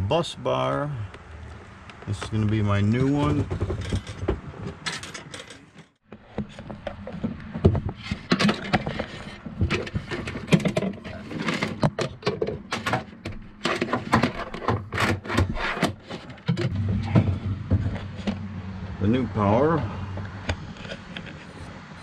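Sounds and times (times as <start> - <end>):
electrical wire scraping and rustling: 1.5 - 22.0
steady low hum: 16.4 - 22.0.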